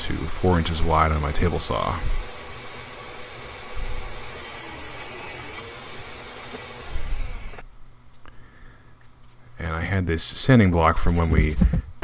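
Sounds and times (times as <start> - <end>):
table saw ripping wood: 0.4 - 7.6.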